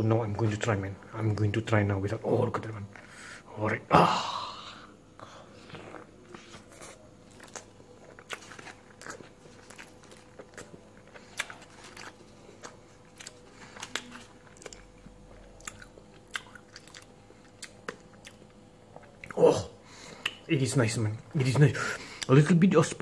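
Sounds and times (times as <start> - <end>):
person chewing food: 5.2 - 20.5.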